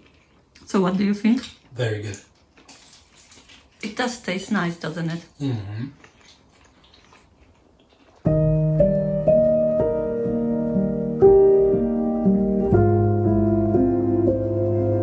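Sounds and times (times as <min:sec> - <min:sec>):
slow piano melody: 0:08.2 - 0:15.0.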